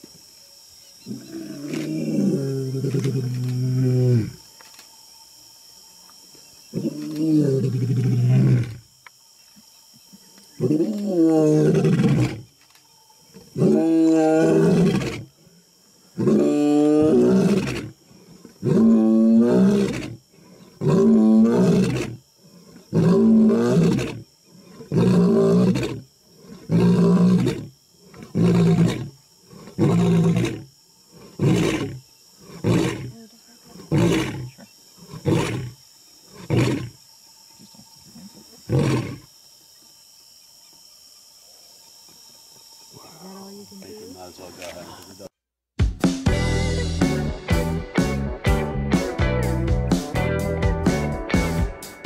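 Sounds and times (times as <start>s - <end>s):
lion roaring: 13.6s - 15.3s, 16.2s - 20.2s, 20.8s - 37.0s.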